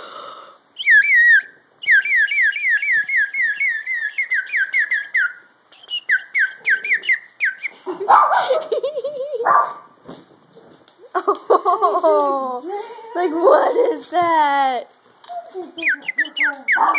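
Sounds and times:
water bird-call whistle chirping: 0.8 - 7.7, 15.8 - 16.9.

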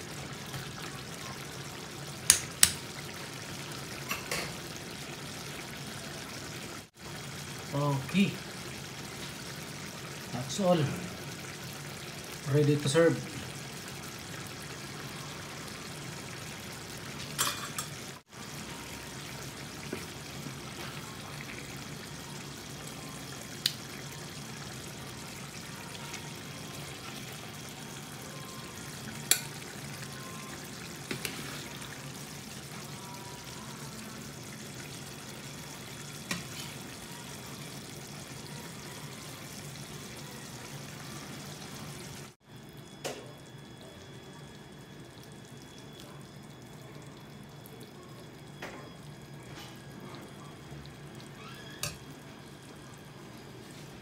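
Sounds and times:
curry sauce bubbling in a pan: 0.0 - 12.5, 13.3 - 17.4, 18.0 - 42.6.

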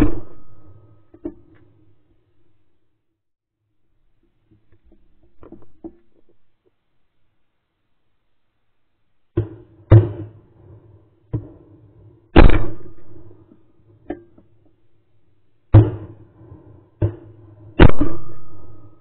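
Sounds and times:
shotgun blasts: 0.0 - 0.9, 12.4 - 13.5, 15.7 - 16.2, 17.0 - 19.0.

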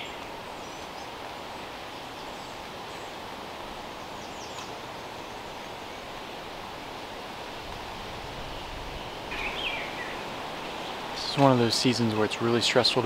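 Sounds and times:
woodland ambience hiss: 0.0 - 13.0
faint high-pitched bird chirps: 8.6 - 10.2.

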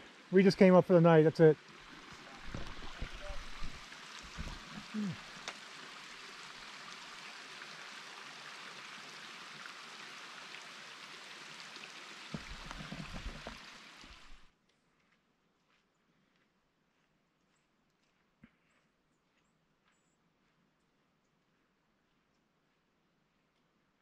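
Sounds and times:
running water rushing: 0.0 - 14.5.

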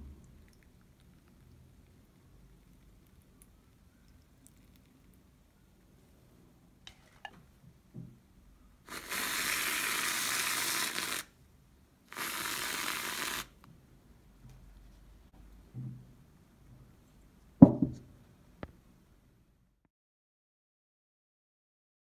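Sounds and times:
whipped cream can hissing: 8.9 - 11.4, 12.1 - 13.6.

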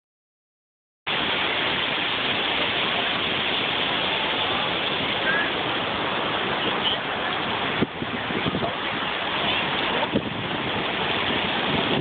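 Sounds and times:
ocean surf washing on beach: 1.1 - 12.0.

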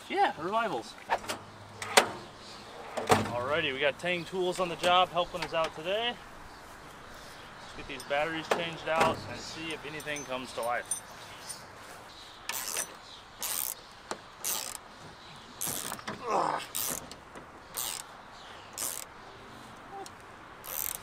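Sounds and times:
ratchet driver clicking: 12.5 - 13.8, 14.4 - 14.8, 17.8 - 18.1, 18.8 - 19.1, 20.6 - 21.0.

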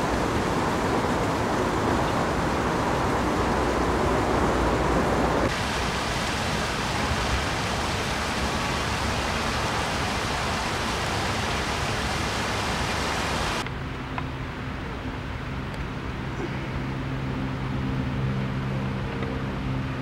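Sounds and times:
water rushing over stones: 0.0 - 13.6.

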